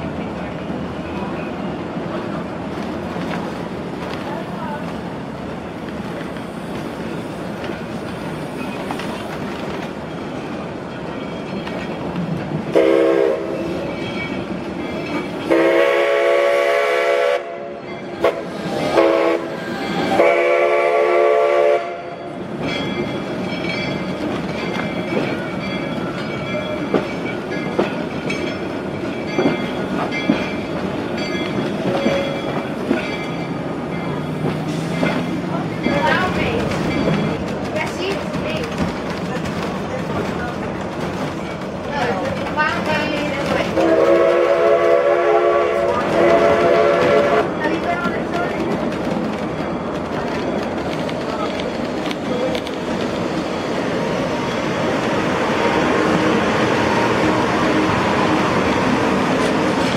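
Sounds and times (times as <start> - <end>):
steam train rumbling: 0.0 - 59.9
steam whistle blowing: 12.8 - 13.6, 15.5 - 17.6, 18.2 - 19.6, 20.2 - 22.1, 43.8 - 47.5
wheels clicking over rail joints: 22.5 - 44.0, 45.7 - 54.6.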